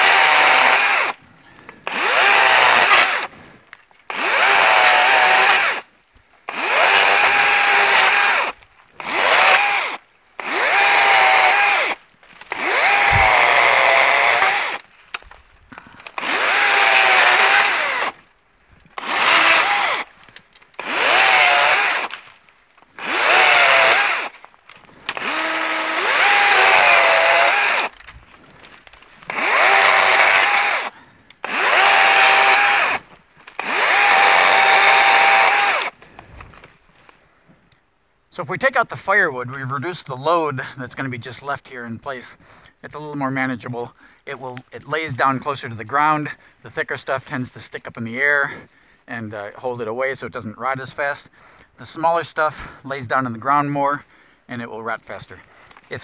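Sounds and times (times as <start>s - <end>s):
battery chainsaw cutting stems: 0.0s - 3.3s, 4.0s - 18.2s, 18.9s - 36.7s.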